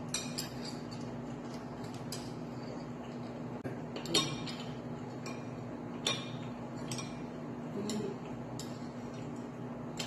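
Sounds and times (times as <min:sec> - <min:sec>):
metal tongs clinking on plate: 0:00.0 - 0:02.9, 0:03.9 - 0:08.8
steady low hum: 0:00.0 - 0:10.0.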